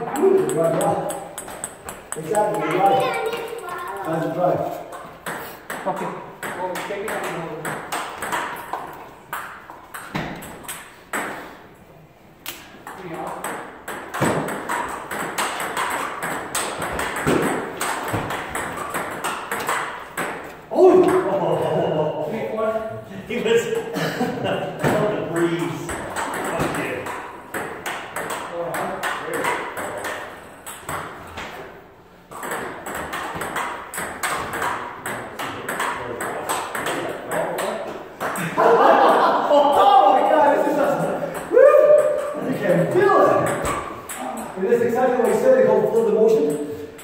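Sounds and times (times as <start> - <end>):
table tennis balls clicking: 0.0 - 11.6, 12.4 - 21.4, 24.8 - 38.5, 39.7 - 47.0
balls bouncing on tables: 0.0 - 11.8, 12.4 - 22.1, 23.5 - 47.0.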